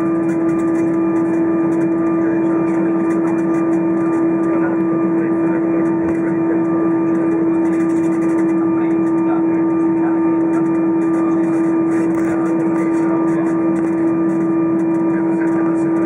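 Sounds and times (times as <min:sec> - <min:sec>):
airplane cabin hum: 0:00.0 - 0:16.0.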